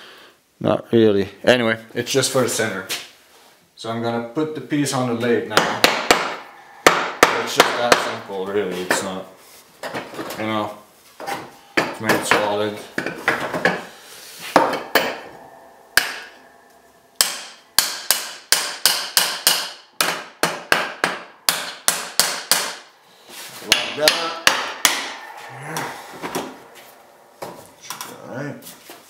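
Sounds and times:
hammer striking wood: 0:05.5 - 0:08.2, 0:14.5 - 0:16.5, 0:17.2 - 0:22.9, 0:23.7 - 0:26.6.

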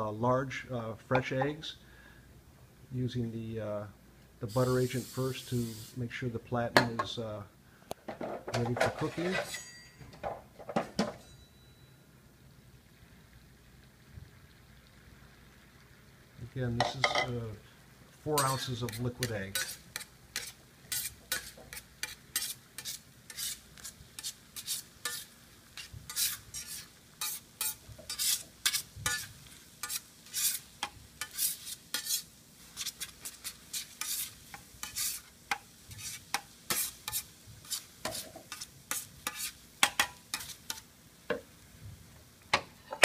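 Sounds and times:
metal spatula scraping griddle: 0:08.7 - 0:09.8, 0:18.3 - 0:40.9.

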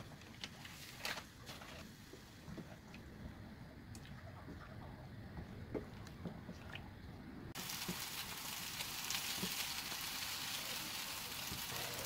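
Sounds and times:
soup boiling and bubbling: 0:07.5 - 0:12.0.

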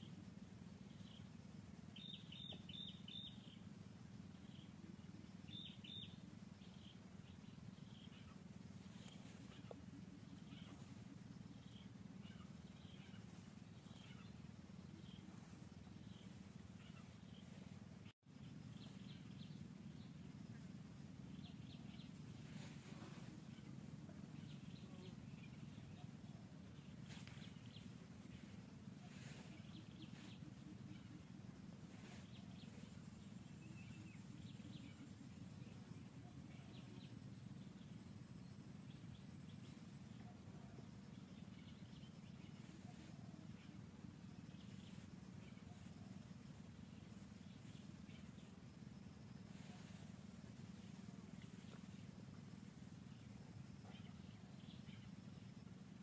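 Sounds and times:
small bird chirps: 0:00.0 - 0:56.0
steady low hum: 0:00.0 - 0:56.0
thin high steady whine: 0:00.0 - 0:56.0.

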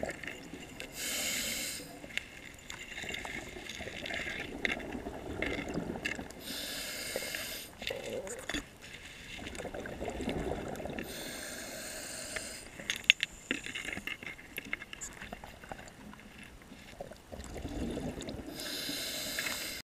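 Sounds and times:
bubbles crackling and popping: 0:00.0 - 0:01.1, 0:01.9 - 0:06.6, 0:07.2 - 0:11.2, 0:12.7 - 0:18.8
hissing regulator inhalation: 0:00.9 - 0:02.0, 0:06.4 - 0:07.8, 0:11.0 - 0:12.8, 0:18.5 - 0:19.8.

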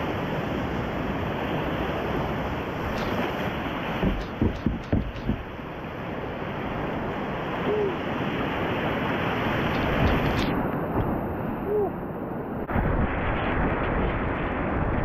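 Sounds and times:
river rapid rushing: 0:01.0 - 0:12.2.

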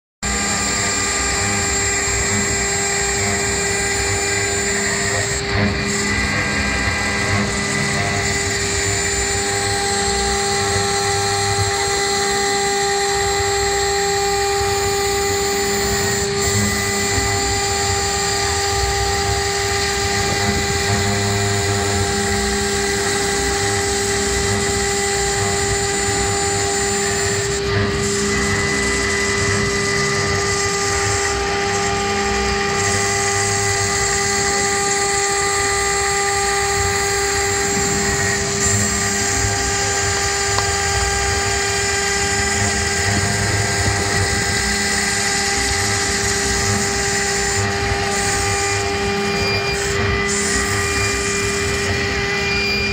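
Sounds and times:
router spindle milling aluminium: 0:00.2 - 0:52.9.

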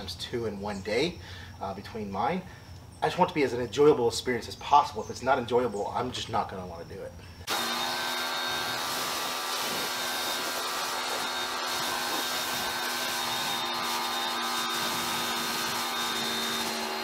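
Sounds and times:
water spray hiss: 0:07.4 - 0:17.0
pressure washer motor hum: 0:07.5 - 0:17.0.

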